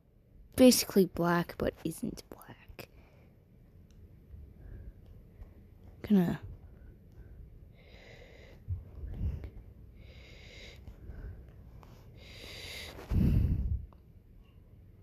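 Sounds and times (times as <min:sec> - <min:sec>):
person breathing: 0:02.9 - 0:03.5, 0:04.5 - 0:05.4, 0:06.7 - 0:13.9.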